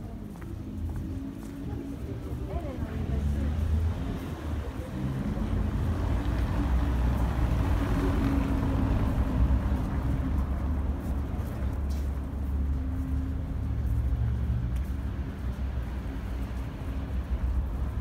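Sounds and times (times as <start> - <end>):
street low rumble: 0.0 - 18.0
vehicle engine hum: 0.0 - 18.0.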